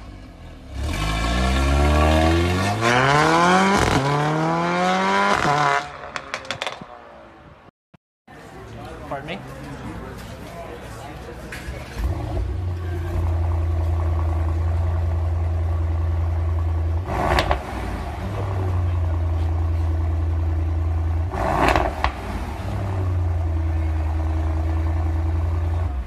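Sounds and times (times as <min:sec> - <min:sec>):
engine revving: 0:00.6 - 0:06.3, 0:12.0 - 0:26.0
exhaust crack: 0:00.7 - 0:07.0, 0:11.8 - 0:26.0
car engine idling: 0:11.8 - 0:26.0.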